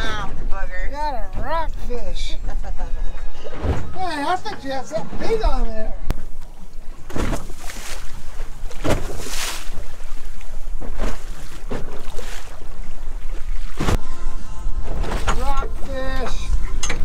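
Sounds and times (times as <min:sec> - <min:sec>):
water slapping against boat hull: 0:05.2 - 0:14.0.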